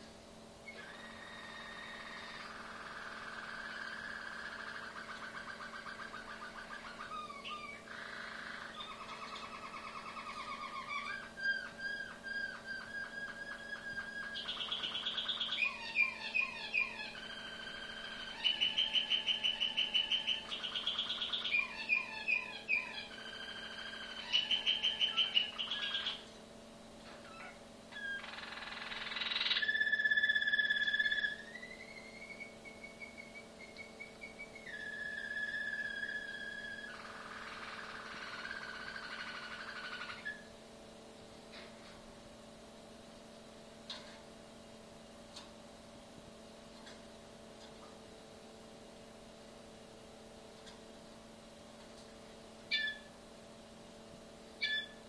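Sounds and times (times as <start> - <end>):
canary singing: 0.6 - 26.3, 27.0 - 40.6, 52.6 - 53.2, 54.5 - 55.0.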